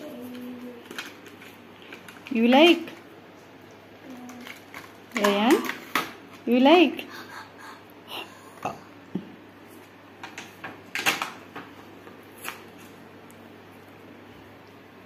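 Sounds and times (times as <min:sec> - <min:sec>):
plastic packaging crinkling: 0:00.1 - 0:03.0, 0:04.1 - 0:06.1.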